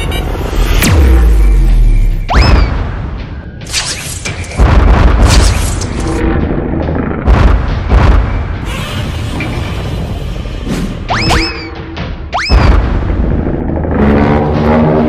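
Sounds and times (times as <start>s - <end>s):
cartoon booms and blasts: 4.6s - 5.7s, 7.2s - 8.9s, 12.4s - 15.0s.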